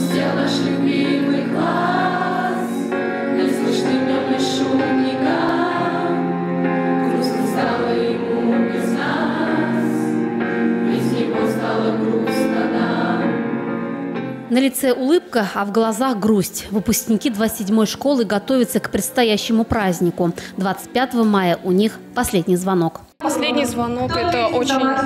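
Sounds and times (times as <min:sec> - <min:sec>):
children's choir singing: 0:00.0 - 0:13.7
low accompanying notes: 0:00.0 - 0:15.0.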